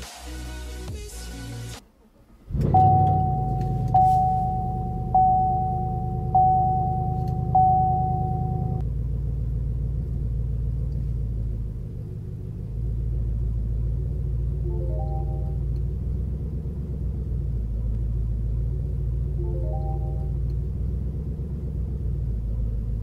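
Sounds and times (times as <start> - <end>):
engine rumbling: 1.9 - 23.0
dashboard warning chime: 2.6 - 8.8, 14.7 - 15.7, 19.4 - 20.4.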